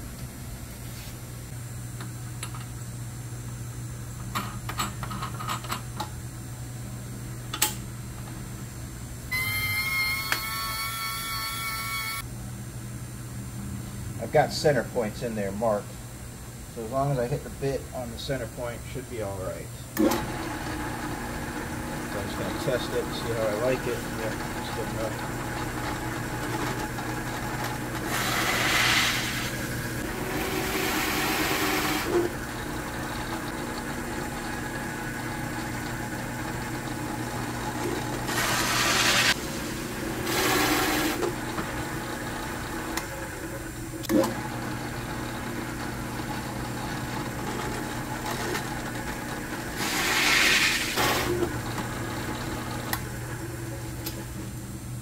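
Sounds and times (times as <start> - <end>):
drill press motor humming: 20.0 - 54.6
hole saw cutting: 28.0 - 32.3, 38.3 - 39.4, 40.2 - 41.3, 49.8 - 51.5.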